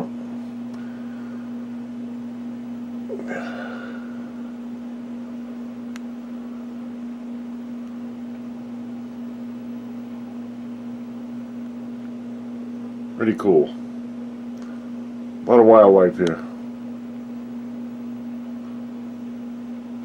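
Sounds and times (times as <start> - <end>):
low hum: 0.0 - 20.0.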